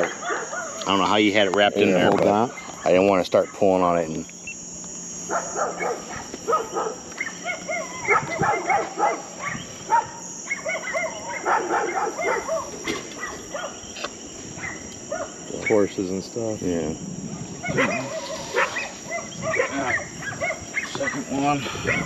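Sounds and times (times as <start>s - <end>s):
dogs barking: 0.0s - 0.9s, 2.5s - 3.8s, 5.2s - 16.0s, 17.3s - 22.0s
high-pitched insect chorus: 0.0s - 22.0s.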